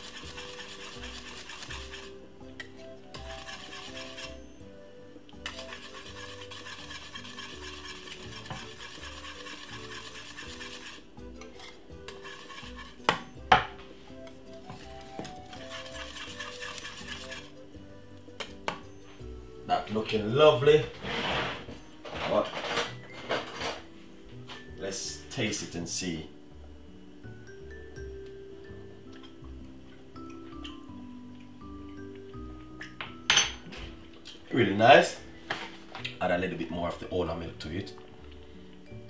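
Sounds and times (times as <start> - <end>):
whisk scraping saucepan: 0.0 - 4.6, 5.4 - 13.3, 14.5 - 17.6.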